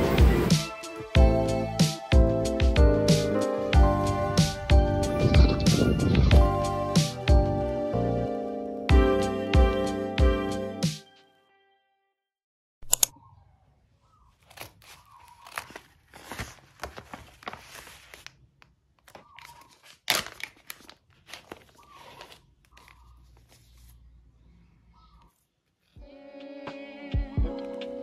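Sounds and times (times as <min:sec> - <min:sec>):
plastic sleeves crinkling: 0:14.3 - 0:24.1.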